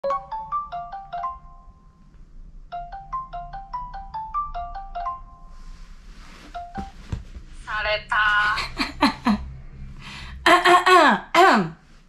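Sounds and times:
marimba phone ringtone: 0:00.0 - 0:01.8, 0:02.7 - 0:05.6.

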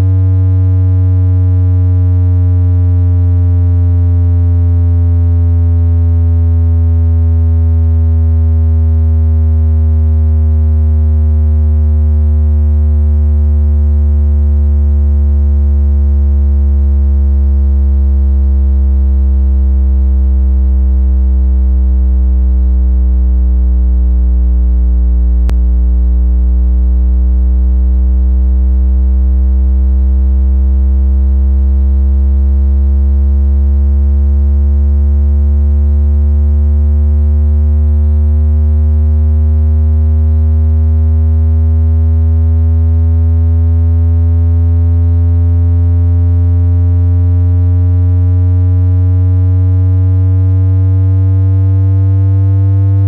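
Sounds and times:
low buzzy synthesized tone: 0:00.0 - 0:53.0.

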